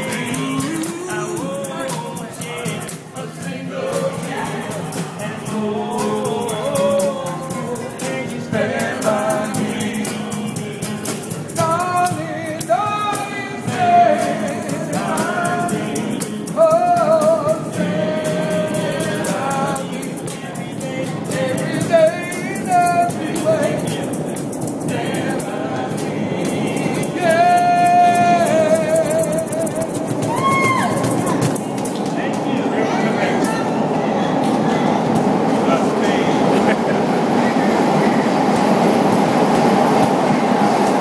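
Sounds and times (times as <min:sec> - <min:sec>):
shaker rattling: 0:00.0 - 0:32.4
men singing in harmony: 0:00.0 - 0:41.0.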